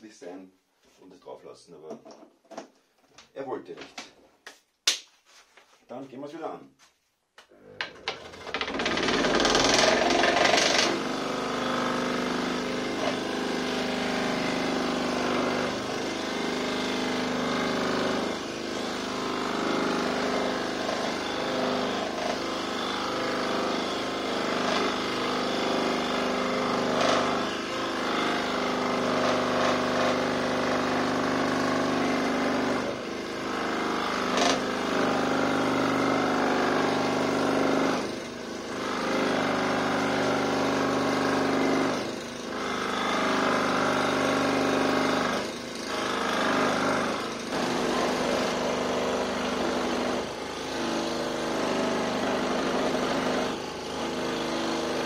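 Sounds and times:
scroll saw cutting wood: 7.6s - 55.0s.

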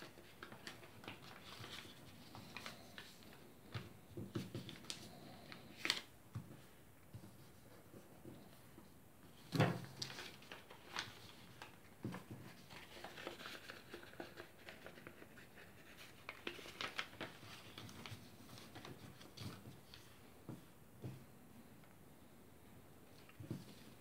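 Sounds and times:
paper folding and crackling: 0.0s - 8.0s, 9.3s - 20.2s.

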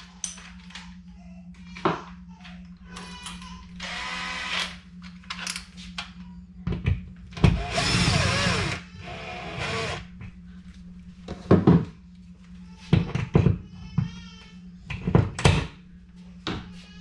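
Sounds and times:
cordless drill boring into wall: 3.8s - 4.7s, 7.5s - 10.0s.

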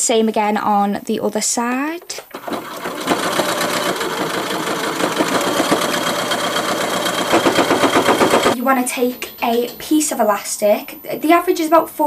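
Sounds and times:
sewing machine stitching: 2.3s - 8.6s.

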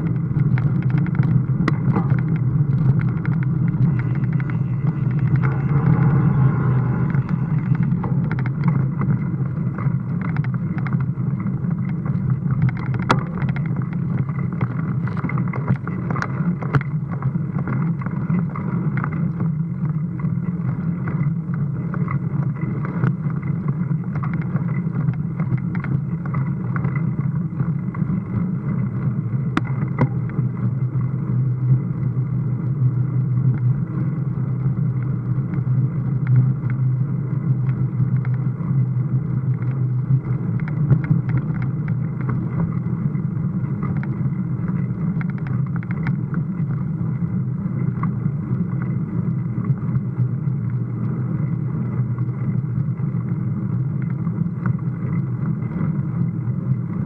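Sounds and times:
faint high whine: 0.0s - 14.6s
bike riding noise: 0.0s - 57.0s
wind rumble: 0.0s - 57.0s.

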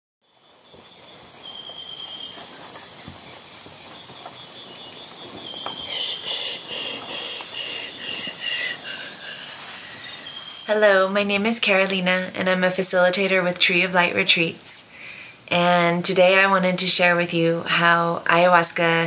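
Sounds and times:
pulsing insect chirps: 0.3s - 12.0s
insects trilling: 0.3s - 12.7s.

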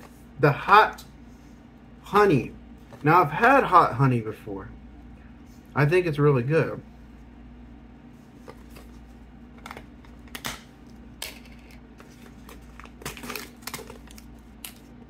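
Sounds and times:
small clicks and crinkles: 11.2s - 15.0s.

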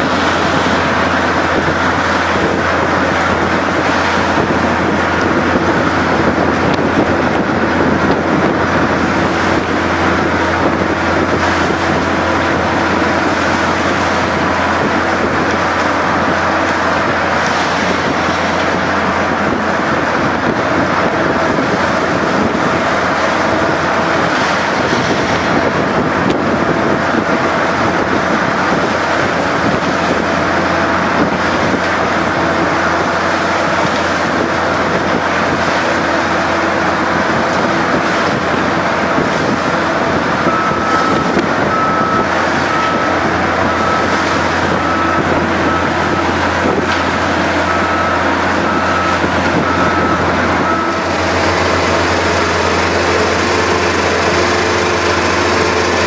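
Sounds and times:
engine drone: 0.0s - 56.0s
bale spreader shredding straw: 49.2s - 56.0s.

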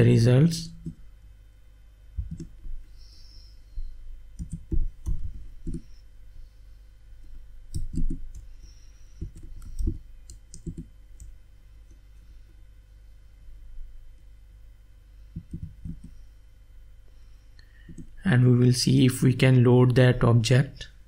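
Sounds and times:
faint low hum: 0.0s - 21.0s
keyboard typing: 2.2s - 2.6s, 4.4s - 5.9s, 7.7s - 8.5s, 9.2s - 11.4s, 15.4s - 16.2s.

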